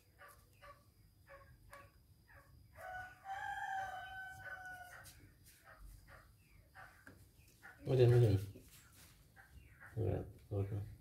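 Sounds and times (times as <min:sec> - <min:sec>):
rooster crowing: 0:02.8 - 0:05.2.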